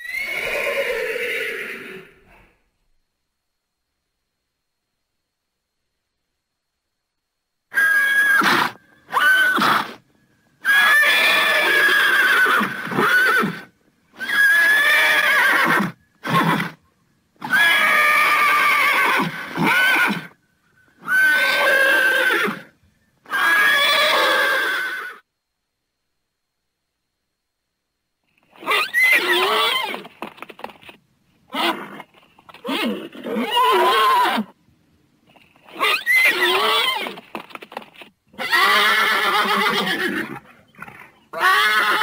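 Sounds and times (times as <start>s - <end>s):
horses whinnying: 0.0s - 2.5s, 7.7s - 10.0s, 10.6s - 16.8s, 17.4s - 20.4s, 21.0s - 25.2s, 28.6s - 30.9s, 31.5s - 34.6s, 35.3s - 37.8s, 38.4s - 42.0s.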